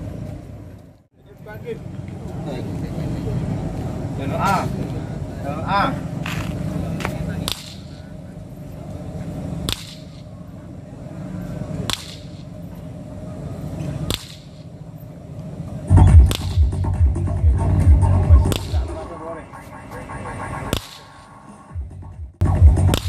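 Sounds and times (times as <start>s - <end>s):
loud music with heavy bass: 15.9s - 23.0s
sharp test pulse cracks: 16.0s - 16.8s, 18.4s - 19.0s, 22.8s - 23.0s.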